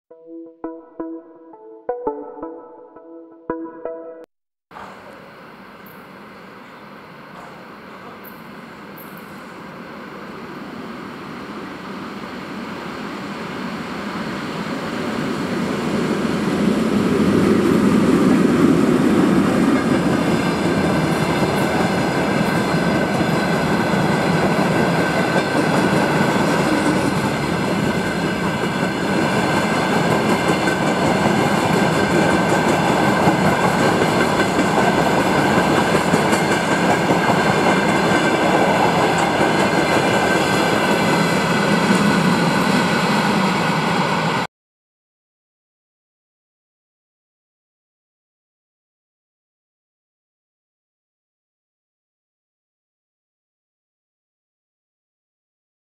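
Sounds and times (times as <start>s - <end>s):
electric locomotive passing: 4.8s - 44.5s.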